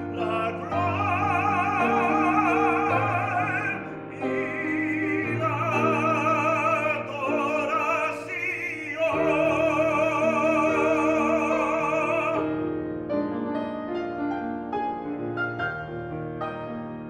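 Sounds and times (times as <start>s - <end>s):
tenor singing with vibrato: 0.0s - 12.5s
grand piano accompaniment: 0.0s - 17.0s.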